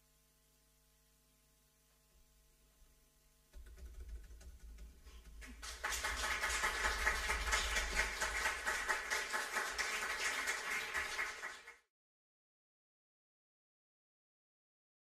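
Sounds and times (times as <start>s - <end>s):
audience applause: 5.4s - 11.8s.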